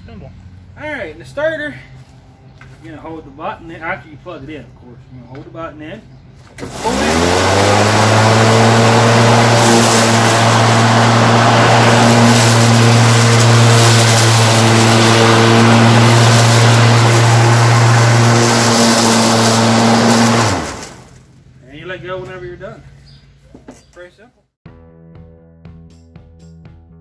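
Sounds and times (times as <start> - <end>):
electric lawn mower running: 6.4 - 21.3.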